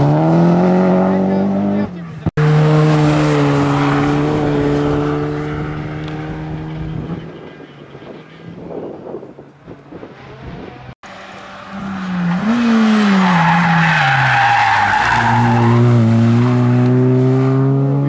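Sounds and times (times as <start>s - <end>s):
race car engine: 0.0s - 18.0s
tyres skidding and squealing: 6.0s - 17.8s.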